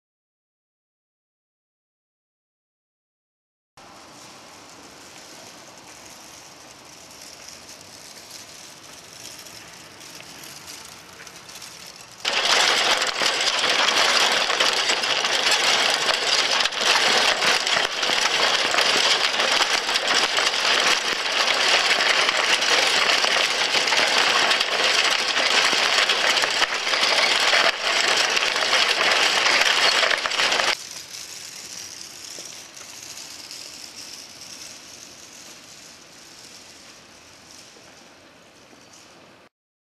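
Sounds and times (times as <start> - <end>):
plastic pieces clattering: 6.0 - 37.6.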